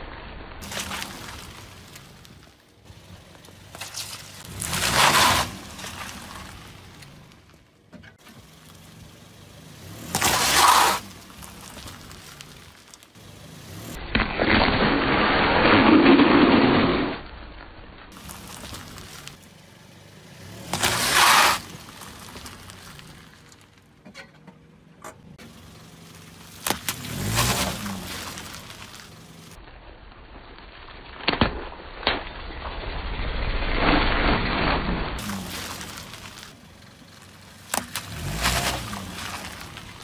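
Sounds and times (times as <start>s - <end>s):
tyre crunching and squashing objects: 0.6s - 7.6s, 9.9s - 17.0s, 18.1s - 19.5s, 20.5s - 23.9s, 25.4s - 29.6s, 33.6s - 40.0s.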